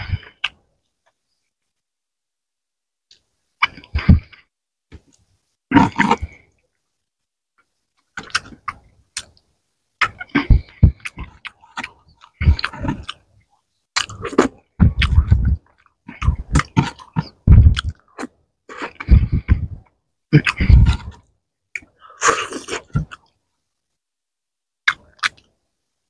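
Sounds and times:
chewing and lip-smacking: 0:08.0 - 0:09.4, 0:10.0 - 0:23.4, 0:24.9 - 0:25.5.

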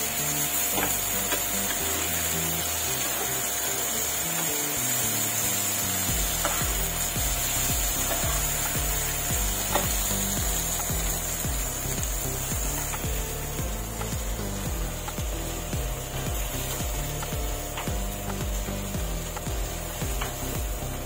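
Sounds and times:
fish sizzling in oil: 0:00.0 - 0:21.0
music with steady beat: 0:00.0 - 0:21.0
spatula scraping and tapping pan: 0:06.1 - 0:10.2.

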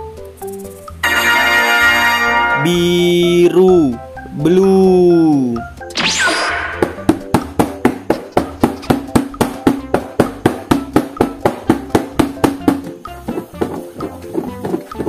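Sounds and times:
short swoosh: 0:06.0 - 0:07.1.

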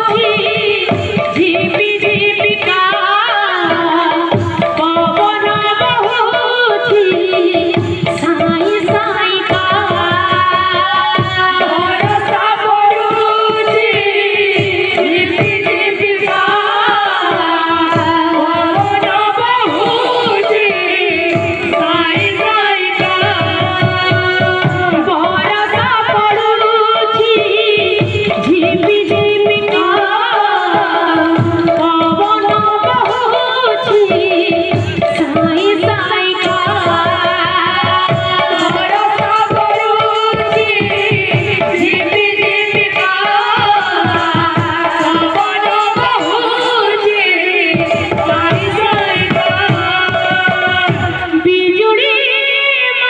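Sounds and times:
woman singing folk song: 0:35.1 - 0:53.0.

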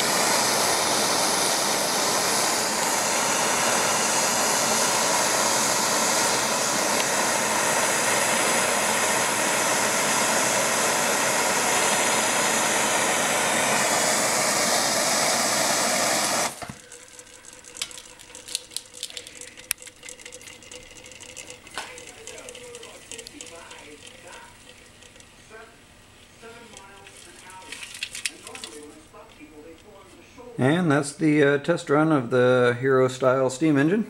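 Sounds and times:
gas torch flame rushing: 0:00.0 - 0:16.9
faint clicks and ticks: 0:16.9 - 0:25.4.

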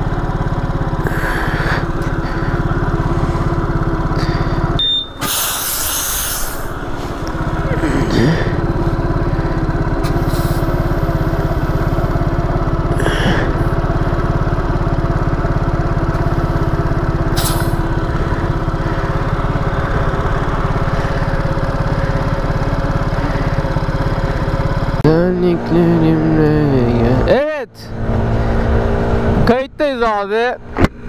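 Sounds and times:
scooter engine idling: 0:00.0 - 0:30.7
short hisses: 0:05.1 - 0:07.2, 0:10.2 - 0:10.8, 0:17.4 - 0:17.8.

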